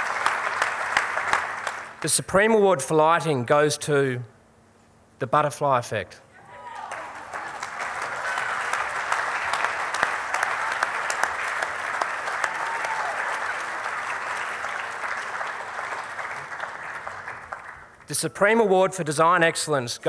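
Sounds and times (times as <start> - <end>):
audience applauding: 0.0 - 2.1, 6.7 - 18.2.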